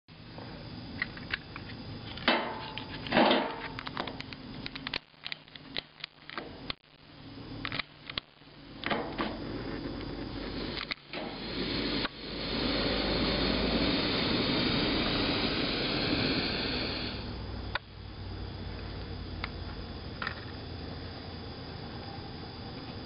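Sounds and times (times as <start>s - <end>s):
lighter flame hiss: 7.5s - 17.9s.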